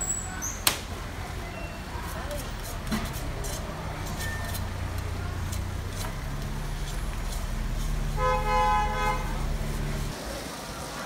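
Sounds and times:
engine running low hum: 0.9 - 10.2
vehicle horn: 7.8 - 10.1.

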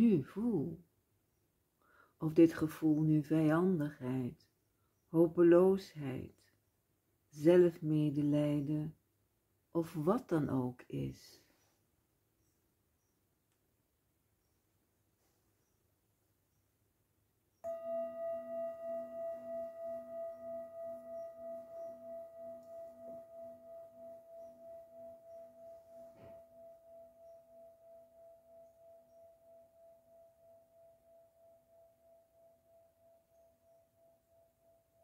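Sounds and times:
singing bowl ringing: 17.6 - 35.0.

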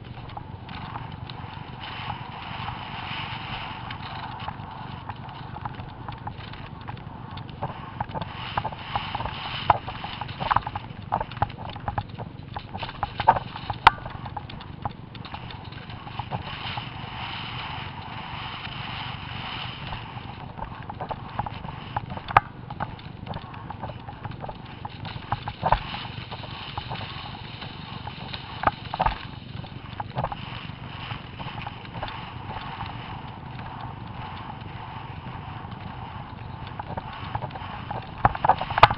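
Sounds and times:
horse hoofbeats galloping: 0.0 - 38.9
steady rushing noise: 0.0 - 38.9.

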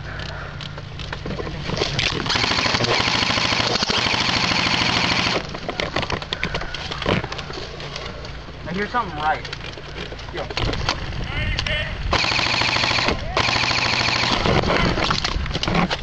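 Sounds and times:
airsoft rifle full-auto burst: 2.2 - 5.4, 12.1 - 14.7.

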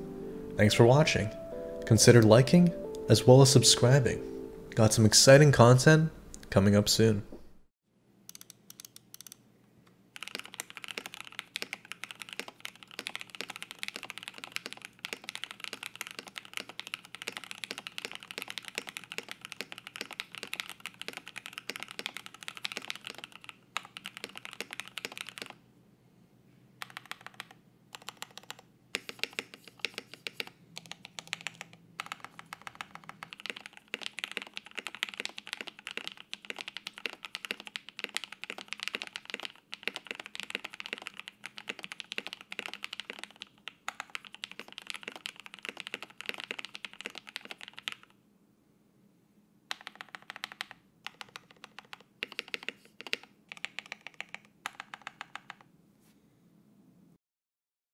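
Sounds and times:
fast typing on mechanical keyboard: 10.2 - 25.6, 26.8 - 48.2, 49.7 - 55.7.

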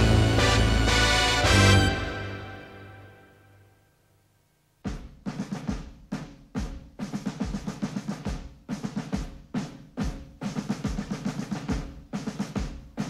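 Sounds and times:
bass drum beats: 4.8 - 13.0
snare drum rolls and rimshots: 4.8 - 13.0.

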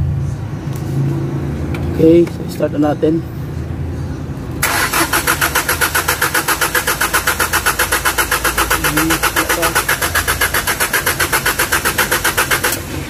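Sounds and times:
diesel engine cranking: 4.5 - 13.0.

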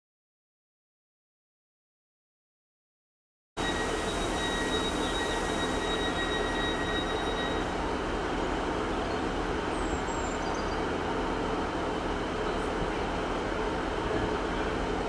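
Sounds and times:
diesel train engines idling: 3.6 - 15.0.

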